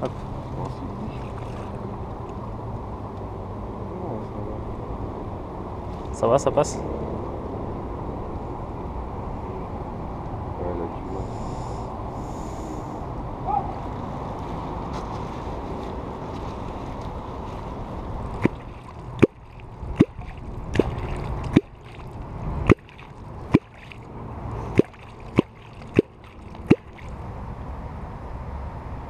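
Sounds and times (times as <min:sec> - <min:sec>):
water noise: 0:00.8 - 0:02.7, 0:16.0 - 0:27.5
clonk striking water surface: 0:19.2 - 0:22.0, 0:22.7 - 0:24.0, 0:24.7 - 0:27.1.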